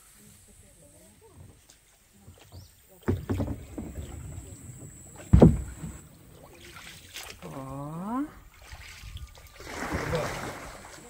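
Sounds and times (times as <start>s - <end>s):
paddles knocking against kayak hull: 2.2s - 7.3s
loud thump: 5.2s - 6.0s.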